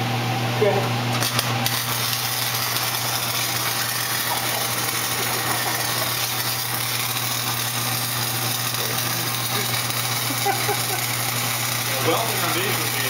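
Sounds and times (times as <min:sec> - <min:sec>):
welding arc crackling: 0:01.0 - 0:13.0.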